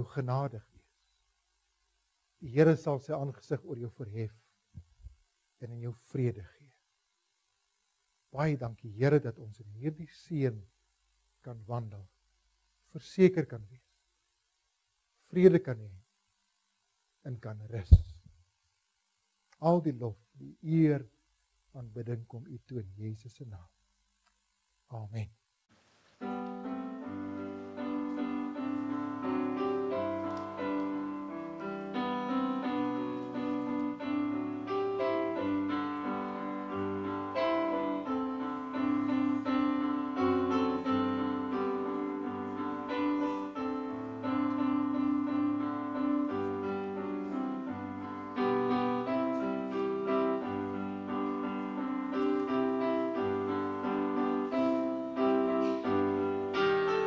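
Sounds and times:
slow piano piece: 26.2s - 57.0s.

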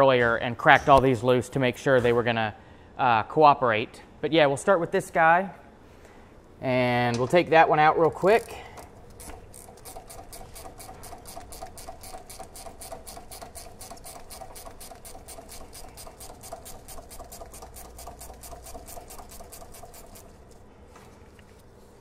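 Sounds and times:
ratcheting wrench clicking: 8.0s - 20.5s.

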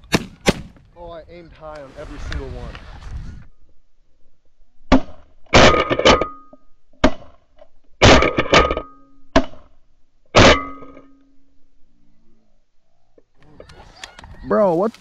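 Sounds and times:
shotgun blasts: 0.0s - 0.9s.

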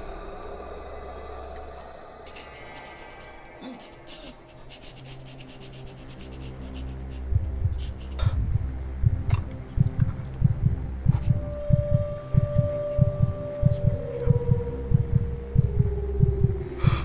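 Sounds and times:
low rumbling drone: 0.0s - 17.0s
deep thudding heartbeat: 7.2s - 17.0s.

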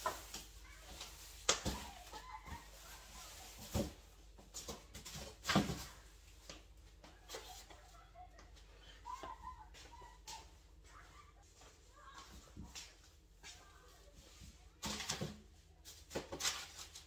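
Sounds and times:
boxes knocking and thudding: 3.6s - 6.0s.

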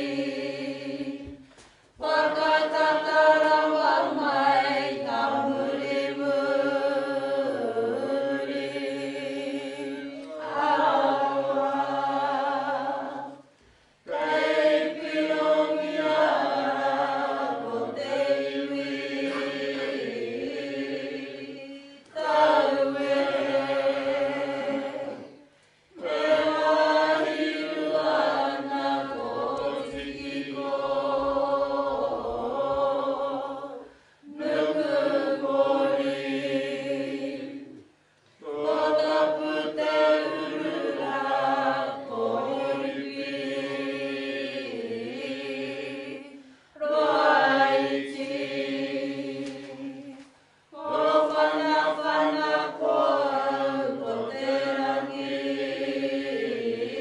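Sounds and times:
group of voices chanting: 14.1s - 21.5s.

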